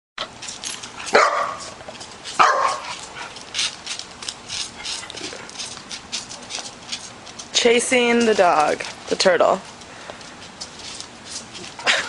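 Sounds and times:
puppy barking: 1.1 - 1.8, 2.4 - 3.0.

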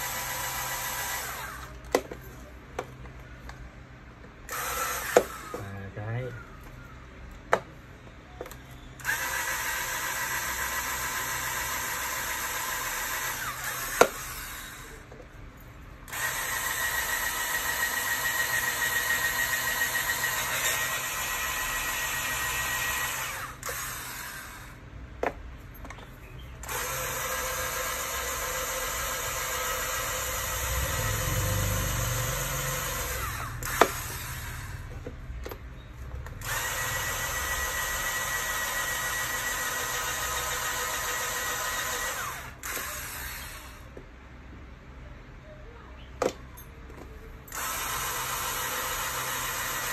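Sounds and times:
electric drill whining: 0.0 - 2.0, 4.5 - 6.3, 8.4 - 15.0, 16.1 - 24.8, 26.6 - 35.6, 36.4 - 44.0, 47.5 - 49.9.

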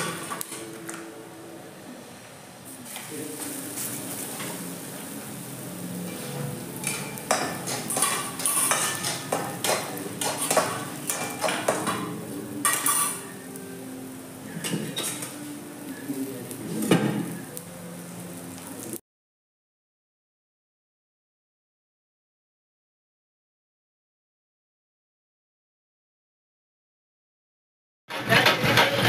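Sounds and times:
frying sizzle: 2.6 - 19.0
metal spatula scraping pans: 2.9 - 5.1, 5.7 - 13.6, 14.5 - 15.4, 28.1 - 29.0.

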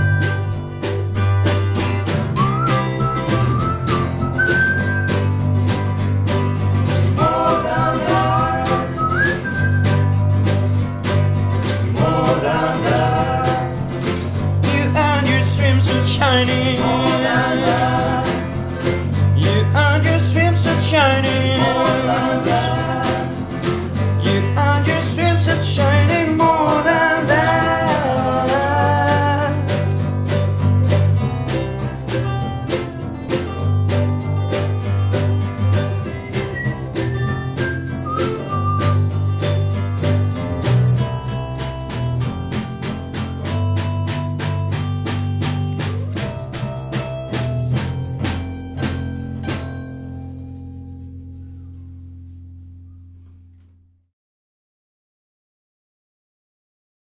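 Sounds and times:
whistled melody: 0.0 - 1.1, 2.2 - 10.8, 16.4 - 28.7, 29.7 - 41.5
steady percussive beat: 0.0 - 51.8
acoustic guitars strummed: 0.0 - 52.9.

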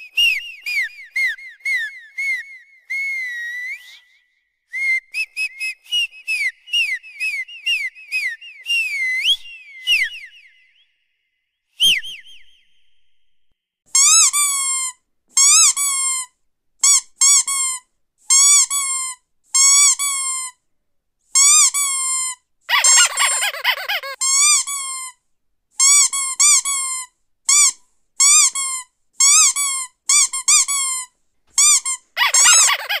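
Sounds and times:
squeaky dog toy squeaking: 14.0 - 20.4, 21.4 - 25.1, 25.8 - 33.0.

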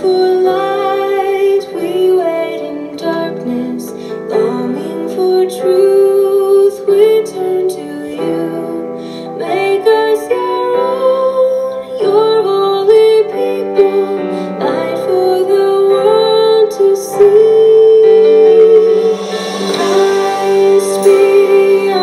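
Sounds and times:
woman singing a hymn: 0.0 - 22.0
instrumental accompaniment: 13.8 - 22.0.

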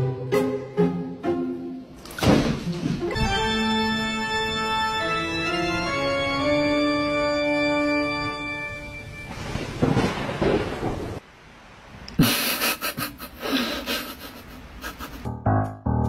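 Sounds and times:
piano music: 2.7 - 9.5, 15.3 - 16.0
organ music: 3.1 - 9.3
noisy crackles: 8.8 - 12.7.

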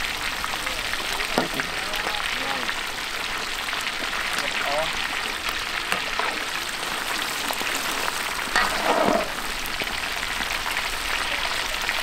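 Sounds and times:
fish deep-frying in oil: 0.0 - 12.0
metal spatula scraping wok: 8.1 - 9.8.

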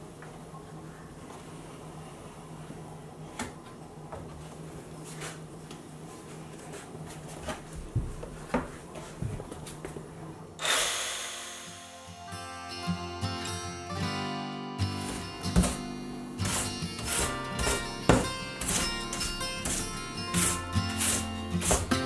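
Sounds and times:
handheld power tool burst: 10.6 - 12.1.

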